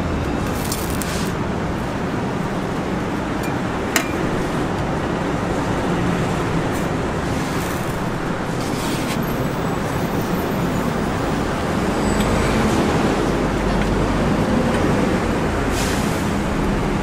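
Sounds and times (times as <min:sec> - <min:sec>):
street traffic noise: 0:00.0 - 0:17.0.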